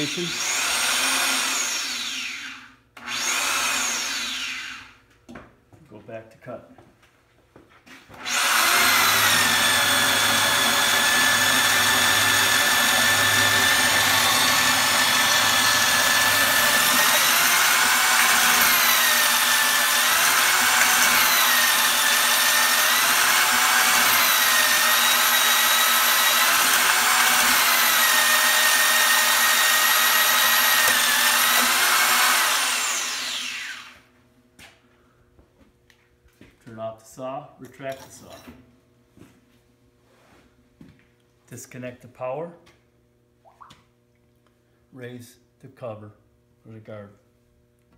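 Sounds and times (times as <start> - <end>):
hole saw cutting into tube: 0.0 - 5.0, 8.2 - 34.0.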